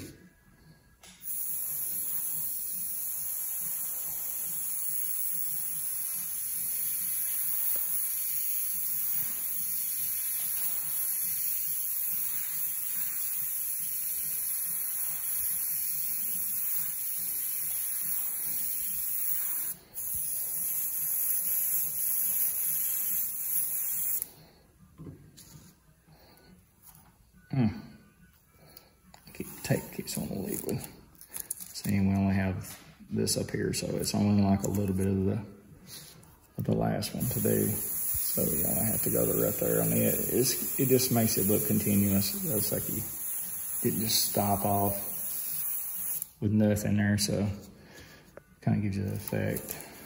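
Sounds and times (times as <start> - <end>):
airbrush spraying hiss: 1.1 - 24.4, 37.0 - 46.4.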